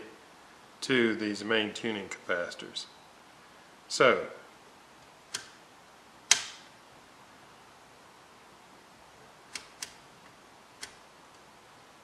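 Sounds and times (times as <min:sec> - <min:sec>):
low hiss: 0:00.0 - 0:12.0
test lead clip clicking: 0:05.3 - 0:05.6, 0:06.3 - 0:06.7.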